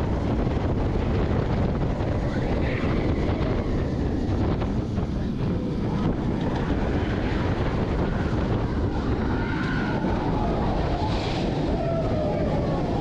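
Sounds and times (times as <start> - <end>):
roller coaster rumbling on track: 0.0 - 13.0
wind rushing over microphone: 0.0 - 13.0.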